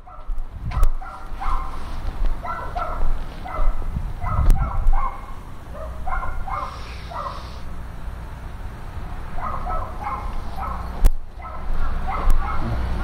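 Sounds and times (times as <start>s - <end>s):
dog yipping and whining: 0.8s - 1.8s, 2.4s - 7.5s, 9.4s - 12.7s.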